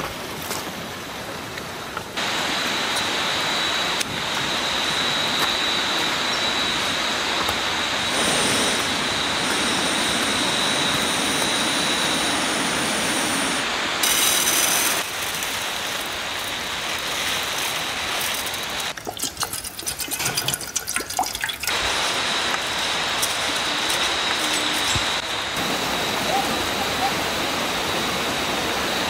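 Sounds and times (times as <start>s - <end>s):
waterfall rushing: 2.2s - 19.0s, 21.7s - 29.0s.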